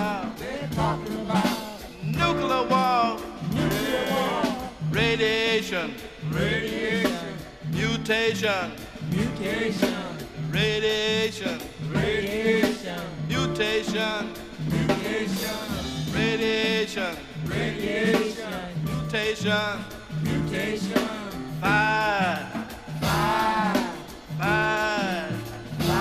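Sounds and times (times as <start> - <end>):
repeating bass line: 0.0 - 5.4, 21.5 - 26.0
wavering sung vocal: 0.0 - 26.0.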